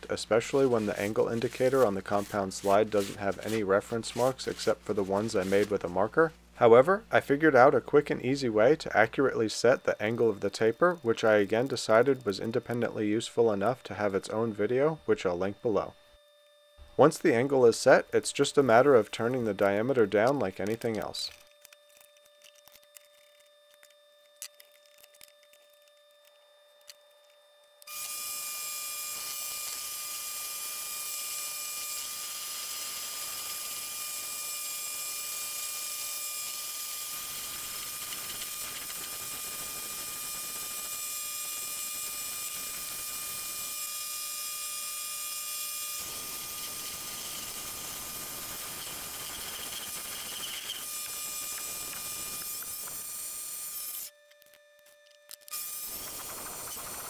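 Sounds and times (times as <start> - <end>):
lathe running with whine: 0.0 - 5.9, 27.2 - 54.1
hissing noise: 0.0 - 6.3.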